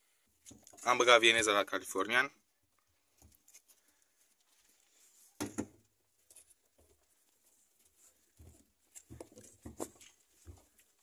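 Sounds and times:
knocks and scuffling in hutch: 0:03.0 - 0:11.0.

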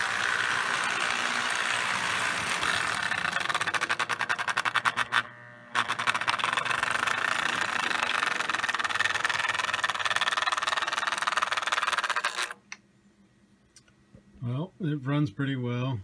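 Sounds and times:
toy train motor whirring: 0:00.0 - 0:12.7
fast clicking of wheels: 0:01.9 - 0:05.2, 0:05.8 - 0:12.6.

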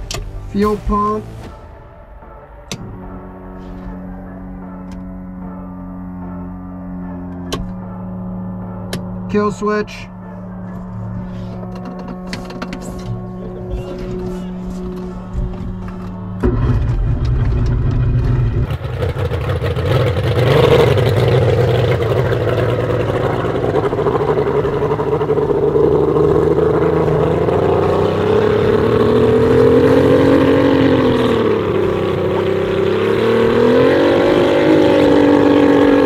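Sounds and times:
outboard engine running and revving: 0:12.8 - 0:36.0.

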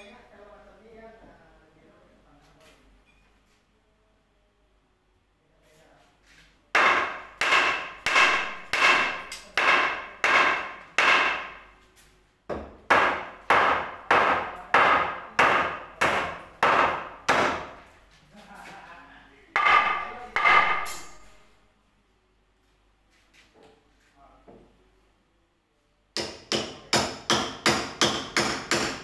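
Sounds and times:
hammer blows ringing: 0:06.8 - 0:11.6, 0:19.6 - 0:21.3.

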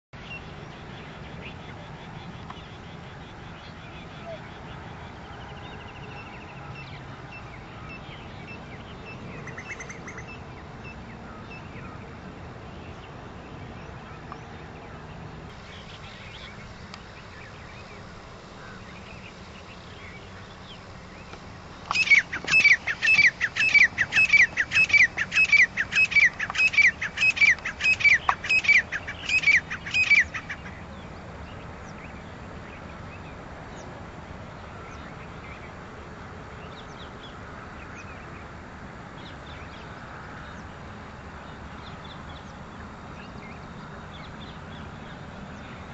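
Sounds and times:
bird shrill repeated calls: 0:21.9 - 0:30.8.

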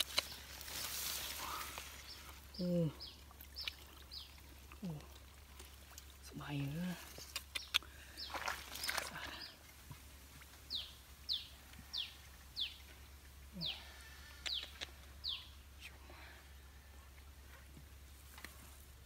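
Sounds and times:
sharp clicks: 0:07.3 - 0:07.9, 0:14.4 - 0:15.0.

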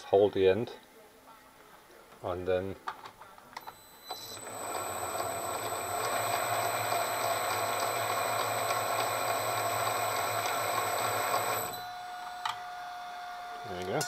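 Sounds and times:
metal lathe whirring: 0:04.2 - 0:14.0.

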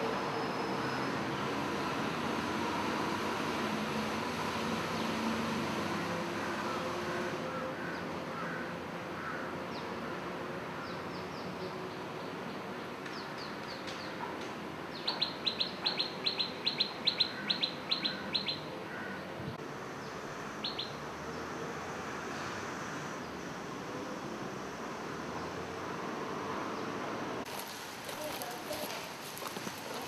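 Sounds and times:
bird chirping: 0:14.9 - 0:18.7, 0:20.0 - 0:21.5
background hiss: 0:27.5 - 0:30.0.

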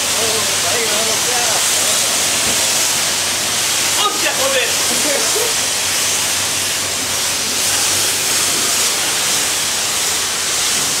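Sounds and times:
pressure washer spraying water: 0:00.0 - 0:11.0.

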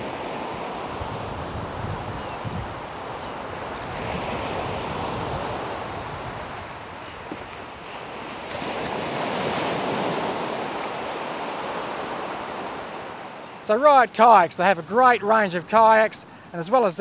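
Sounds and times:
wind noise on microphone: 0:00.0 - 0:10.8
waves breaking on beach: 0:00.0 - 0:17.0.

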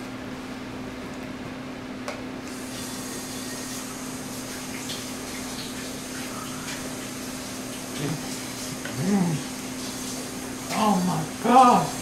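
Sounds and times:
low background hum: 0:00.0 - 0:12.0
faint eating noises: 0:04.7 - 0:12.0.

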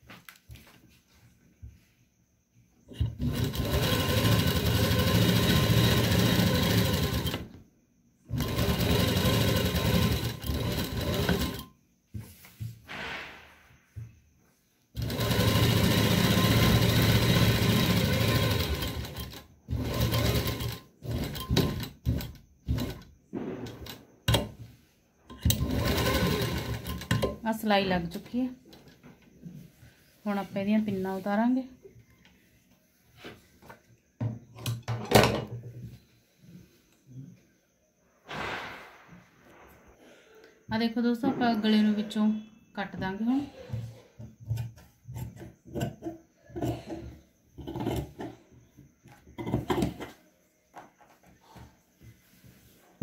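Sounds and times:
sewing machine stitching: 0:02.9 - 0:07.5, 0:08.3 - 0:11.7, 0:15.0 - 0:24.5, 0:25.4 - 0:27.4.

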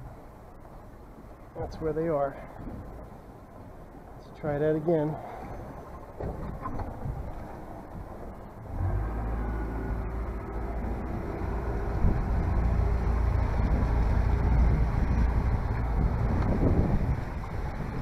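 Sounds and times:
outboard motor running: 0:05.7 - 0:18.0.

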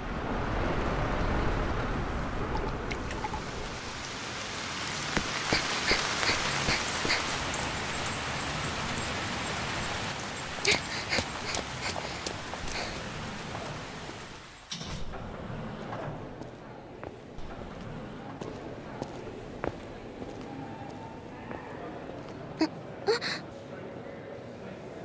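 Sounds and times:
rain falling: 0:00.0 - 0:16.6.

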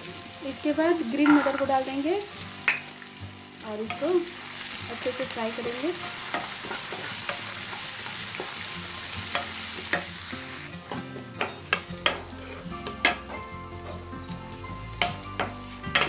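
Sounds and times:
vegetables sizzling in oil: 0:00.0 - 0:16.0
spatula scraping and knocking pan: 0:01.0 - 0:02.0, 0:05.5 - 0:10.2, 0:10.9 - 0:14.1, 0:15.0 - 0:16.0.

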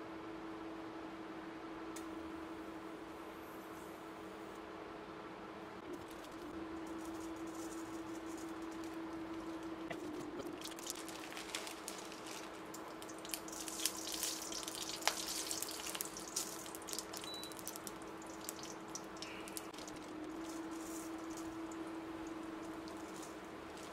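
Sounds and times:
steady low hum: 0:00.0 - 0:23.9
spices crackling in hot oil: 0:05.9 - 0:23.9.

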